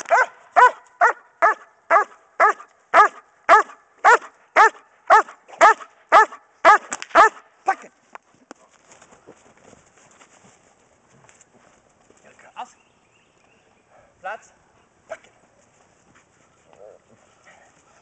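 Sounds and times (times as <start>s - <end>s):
dog barking: 0.0s - 7.8s.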